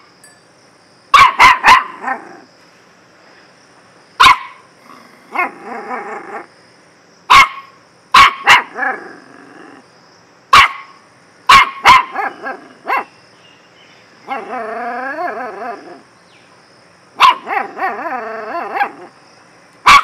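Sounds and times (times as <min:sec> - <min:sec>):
puppy barking: 0:01.1 - 0:02.4, 0:04.2 - 0:04.6, 0:05.3 - 0:06.5, 0:07.3 - 0:09.0, 0:10.5 - 0:13.1, 0:14.3 - 0:15.4, 0:17.2 - 0:19.1.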